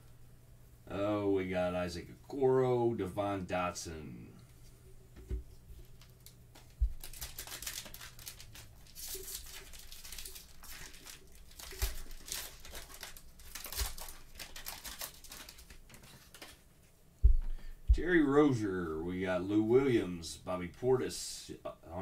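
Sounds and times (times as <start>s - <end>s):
plastic wrapper tearing and crinkling: 5.8s - 16.6s
soft thuds: 6.8s - 7.0s, 17.2s - 18.3s.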